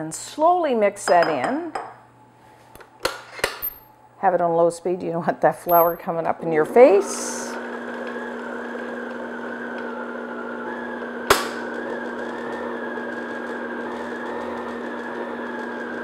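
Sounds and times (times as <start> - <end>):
stand mixer motor running: 6.9 - 16.0.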